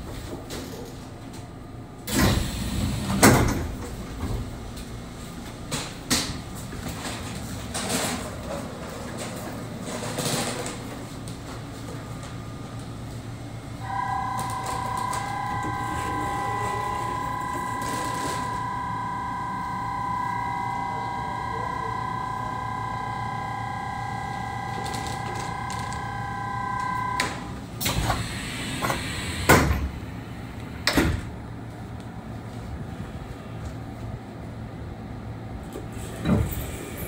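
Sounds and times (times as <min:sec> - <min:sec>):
machine whine: 0:13.8 - 0:30.4.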